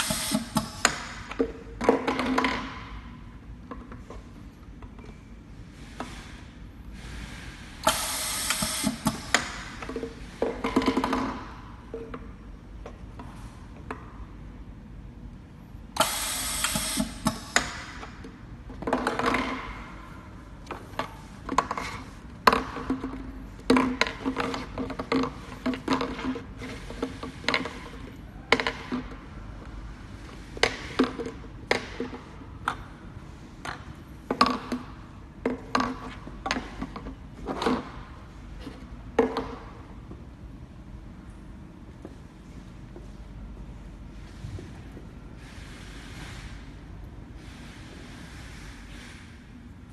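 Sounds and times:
pneumatic machine hissing: 0.0s - 1.0s, 5.8s - 9.8s, 16.0s - 18.0s.

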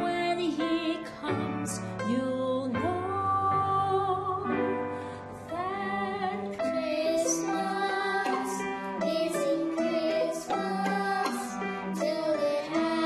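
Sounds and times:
woman singing: 0.0s - 13.0s
violin and cello playing: 5.8s - 13.0s.

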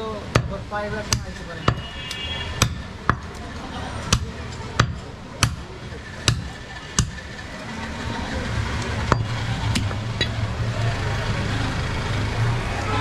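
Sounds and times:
knife chopping meat on wooden block: 2.6s - 3.3s, 6.3s - 7.2s.

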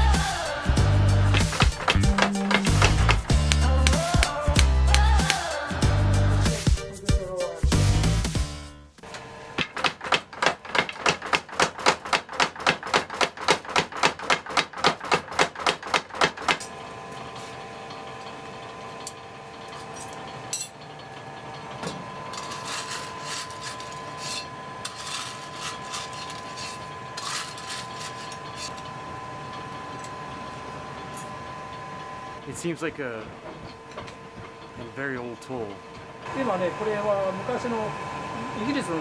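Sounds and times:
steady machine hum: 0.0s - 14.2s, 16.0s - 39.0s
power hammer striking hot steel: 1.2s - 5.7s, 9.0s - 16.9s.

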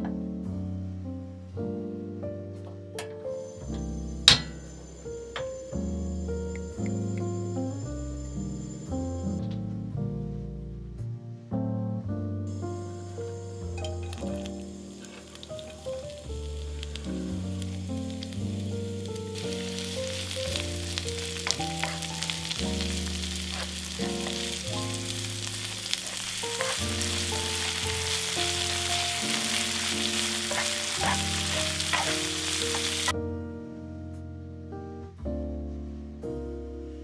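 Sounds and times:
soft background music: 0.0s - 37.0s
food sizzling in oil: 3.4s - 8.9s, 12.5s - 33.1s.

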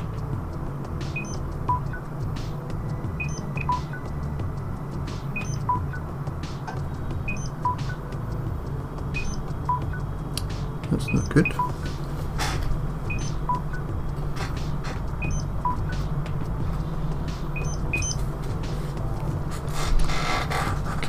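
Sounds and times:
steady low hum: 0.0s - 21.0s
high beeping music notes: 1.1s - 2.1s, 3.0s - 4.2s, 5.2s - 6.1s, 6.7s - 8.1s, 9.1s - 10.1s, 10.9s - 12.0s, 13.0s - 14.1s, 15.1s - 16.1s, 17.4s - 18.4s.

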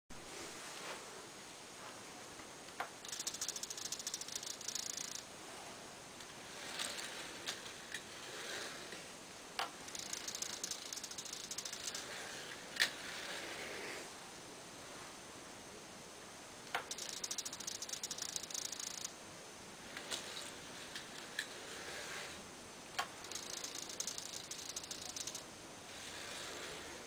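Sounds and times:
light clicks of handled models: 2.7s - 5.2s, 9.6s - 13.1s, 16.7s - 19.1s, 19.9s - 22.2s, 23.0s - 25.4s
servo buzzing through plastic gears: 3.0s - 5.2s, 9.8s - 13.0s, 16.7s - 19.1s, 23.0s - 25.4s.

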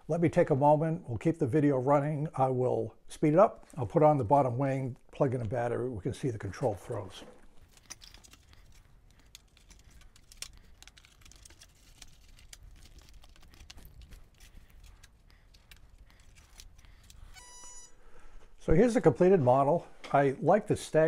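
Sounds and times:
faint clicks and rustles of handling: 6.3s - 18.6s.

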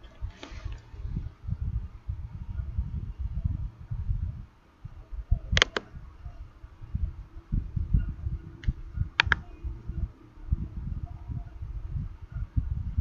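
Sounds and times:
computer mouse clicks: 5.5s - 5.9s, 8.6s - 9.5s.

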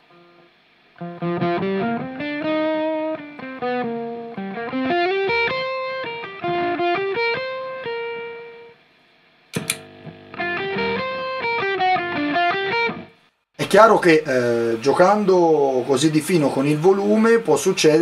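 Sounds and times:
distorted electric guitar: 0.0s - 8.8s, 9.5s - 18.0s
sharp click: 9.5s - 9.9s.

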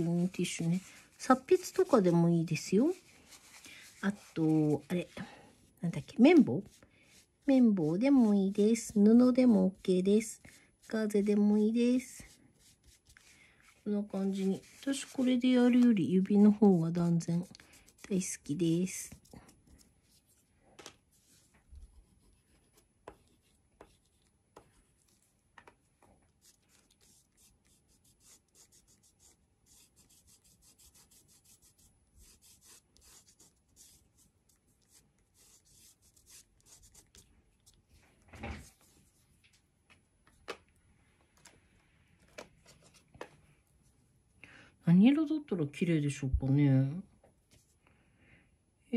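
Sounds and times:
crayon rubbing on paper: 0.0s - 5.2s, 6.2s - 15.4s, 26.4s - 37.3s.

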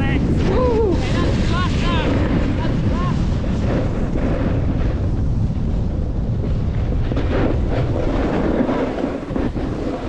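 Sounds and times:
wind rumbling on microphone: 0.0s - 10.0s
ski edges scraping hard snow: 7.1s - 10.0s.

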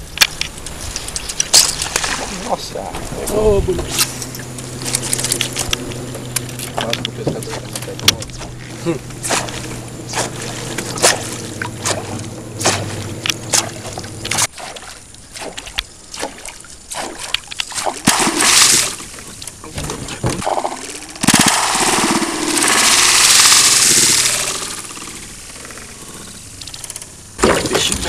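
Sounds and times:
low steady hum: 0.0s - 28.0s
loud water splash: 1.7s - 2.6s, 9.2s - 19.2s, 20.4s - 24.8s
heavy churning splash: 9.2s - 19.4s, 20.1s - 25.6s
fish striking lures with pops: 9.2s - 19.6s.

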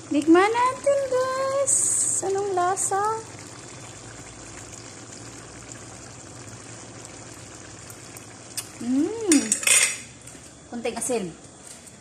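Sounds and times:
stew bubbling in a wok: 0.0s - 10.8s
person humming: 8.8s - 9.4s.

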